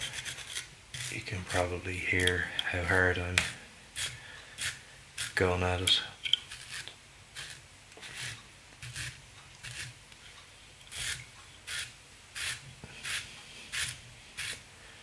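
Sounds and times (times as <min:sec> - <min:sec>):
brush scraping fibres: 0:00.0 - 0:10.0, 0:10.9 - 0:14.7.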